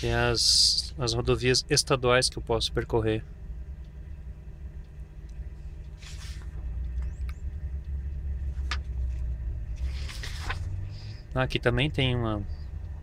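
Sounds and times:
truck engine idling: 0.0s - 13.0s
paper rustling: 6.0s - 6.5s, 9.8s - 10.8s.

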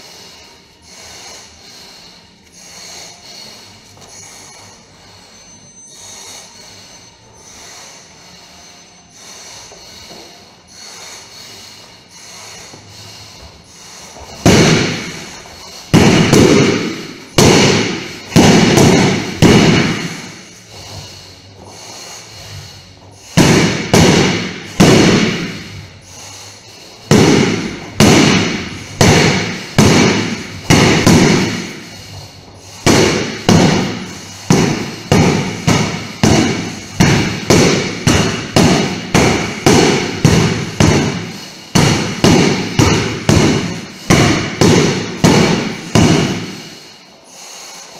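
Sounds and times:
sword striking punching bag: 14.4s - 15.3s, 15.9s - 20.4s, 23.4s - 25.7s, 27.1s - 31.8s, 32.8s - 46.6s.

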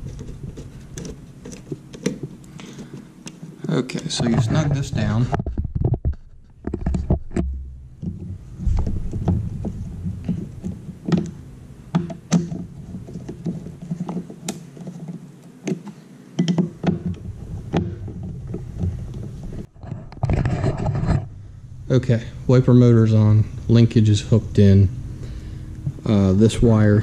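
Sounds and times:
low rumble: 7.4s - 11.9s
metal tool clicks and knocks: 16.4s - 18.3s.

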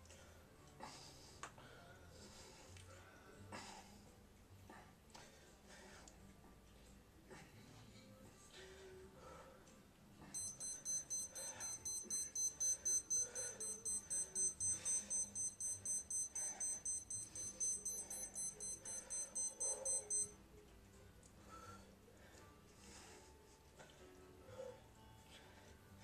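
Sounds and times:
electronic timer alarm beeping: 10.4s - 20.4s.

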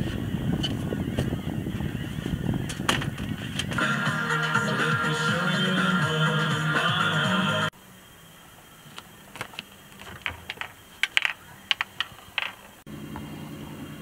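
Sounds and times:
small objects clicking and tapping: 9.4s - 12.8s.

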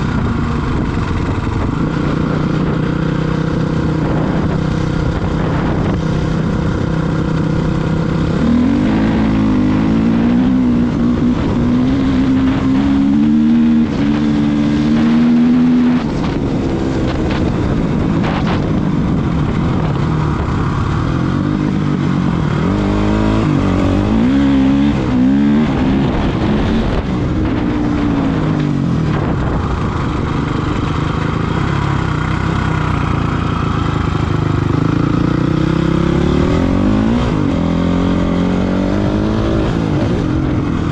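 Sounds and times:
motorcycle engine revving: 0.0s - 40.9s.

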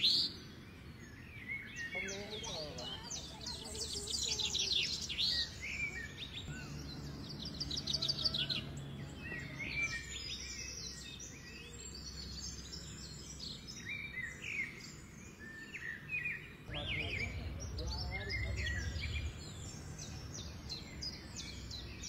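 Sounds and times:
birds chirping: 0.0s - 22.0s
low background rumble: 16.5s - 22.0s.

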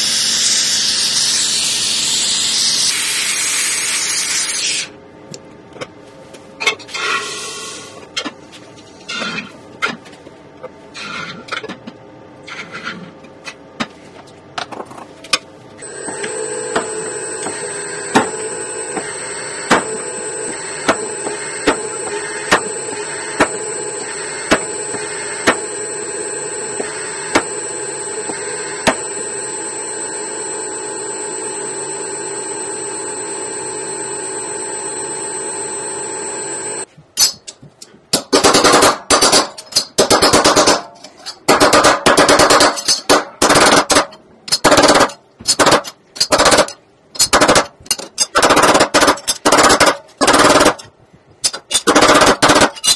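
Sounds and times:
rolling mill humming and whining: 14.6s - 37.0s.

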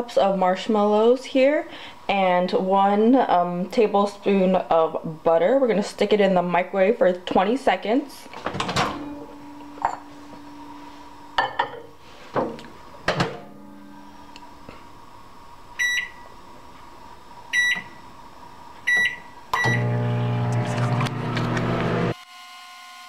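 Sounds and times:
keypad beeps: 18.9s - 19.8s.

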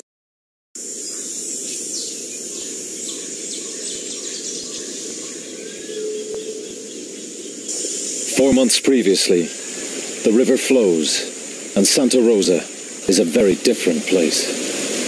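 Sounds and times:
bird chirps: 0.8s - 8.4s
insect drone: 0.8s - 15.0s.

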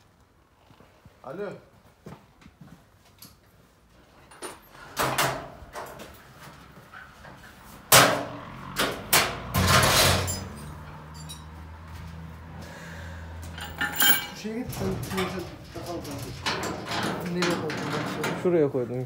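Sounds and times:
sheet metal panels clattering: 7.3s - 11.3s, 13.5s - 18.9s
metal panel scraping: 14.7s - 18.6s.

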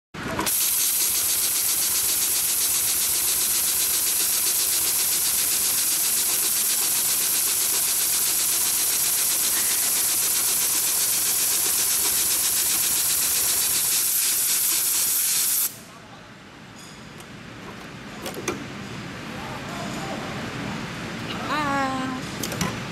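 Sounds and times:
sewing machine stitching: 0.2s - 14.9s.

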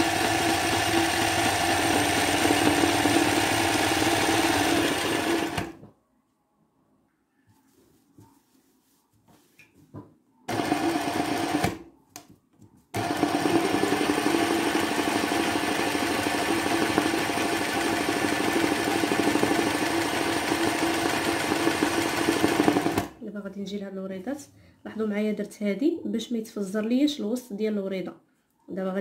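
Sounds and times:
sewing machine stitching: 0.0s - 5.8s, 10.5s - 11.8s, 13.0s - 23.2s.

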